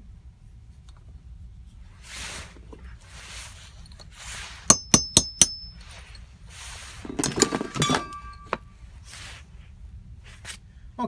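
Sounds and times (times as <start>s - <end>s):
hammer striking metal punch: 4.7s - 5.8s, 7.3s - 8.6s
metal clattering and clinking: 7.0s - 8.7s.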